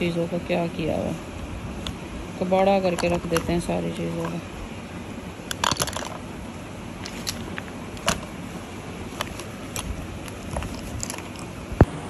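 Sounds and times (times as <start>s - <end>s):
steady hiss: 0.0s - 12.0s
plastic makeup items clicking: 2.9s - 4.4s, 5.5s - 6.2s, 9.2s - 11.5s.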